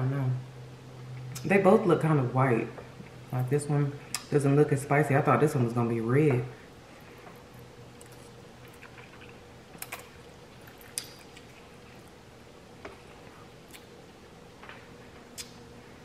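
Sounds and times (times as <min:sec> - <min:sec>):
chewing clicks: 0:08.0 - 0:11.6.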